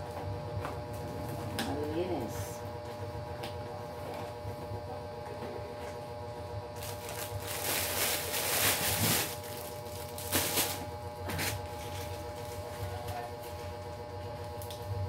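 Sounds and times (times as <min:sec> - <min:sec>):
plastic wrapping crinkling: 0:06.8 - 0:13.2.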